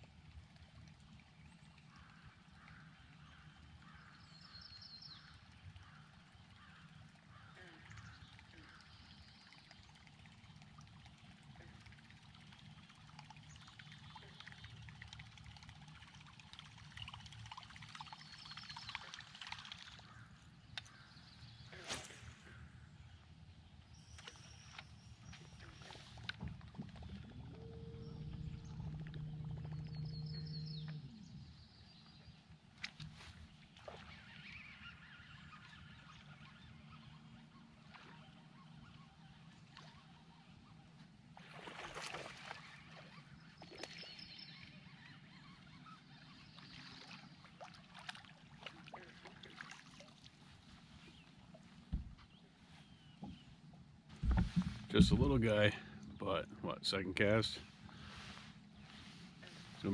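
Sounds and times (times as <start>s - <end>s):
trolling motor humming: 23.8s - 32.3s.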